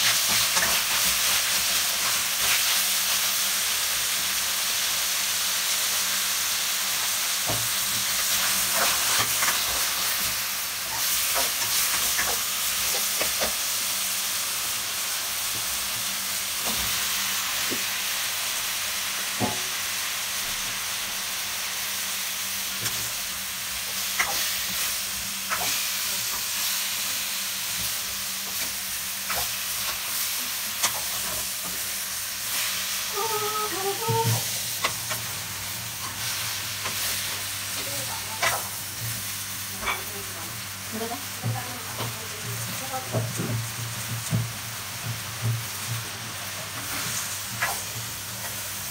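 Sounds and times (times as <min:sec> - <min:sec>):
food sizzling in a frying pan: 0:00.0 - 0:48.9
spoon scraping and knocking pan: 0:39.8 - 0:40.1.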